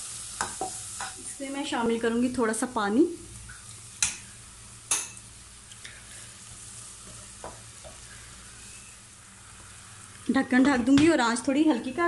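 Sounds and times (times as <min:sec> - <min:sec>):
masala sizzling in oil: 0:00.0 - 0:12.0
spatula stirring in pan: 0:05.8 - 0:09.9.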